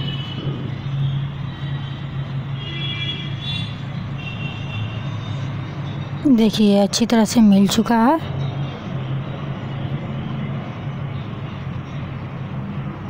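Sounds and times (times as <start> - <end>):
low hum: 0.0 - 2.6.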